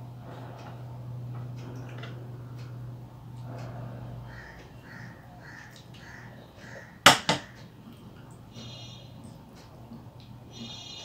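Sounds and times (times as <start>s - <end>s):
crow cawing: 4.3s - 7.7s.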